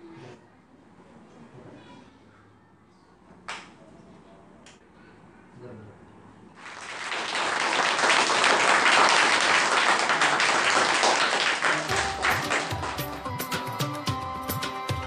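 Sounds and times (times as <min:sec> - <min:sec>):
children clapping and applauding: 0:06.6 - 0:13.9
music: 0:11.9 - 0:15.0.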